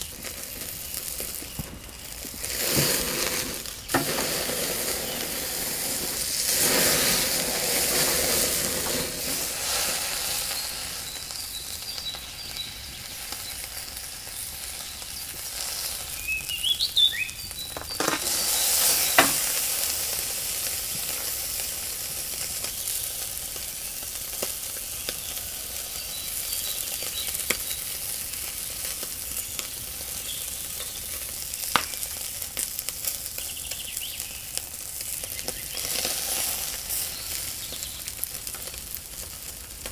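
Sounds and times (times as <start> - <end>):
steak sizzling on a grill: 0.0 - 39.9
bird chirping: 4.9 - 5.6, 10.4 - 19.5, 23.9 - 28.1, 29.4 - 31.1, 33.3 - 36.0, 37.0 - 38.2.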